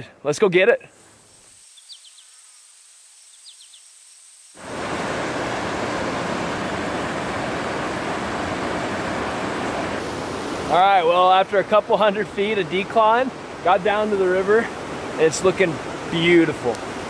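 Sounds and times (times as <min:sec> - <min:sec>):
high chirps: 0:01.0 - 0:04.6
faint high insect buzz: 0:01.0 - 0:04.9
river rushing over boulders: 0:04.6 - 0:17.0.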